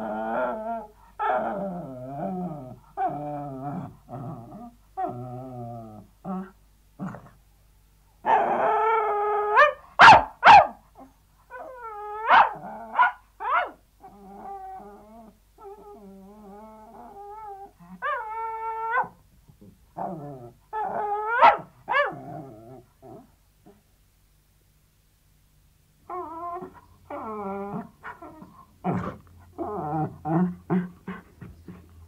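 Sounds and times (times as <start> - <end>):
dog yelping and whining: 8.3 - 19.2, 20.0 - 23.2, 26.1 - 30.8.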